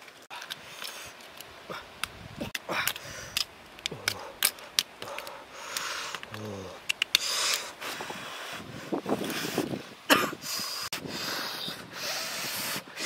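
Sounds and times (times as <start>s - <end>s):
short irregular clicks: 2.8s - 7.7s.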